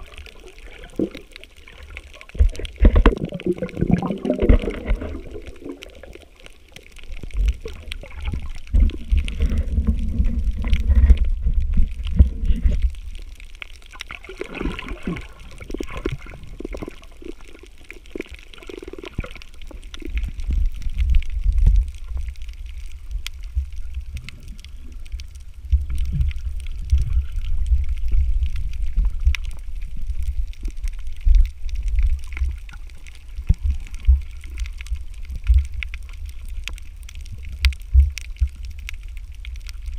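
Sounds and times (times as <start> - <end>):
gurgling: 0.0 - 6.4, 14.3 - 17.7
crackling clicks: 0.0 - 39.9
underwater rumble of moving water: 0.0 - 39.9.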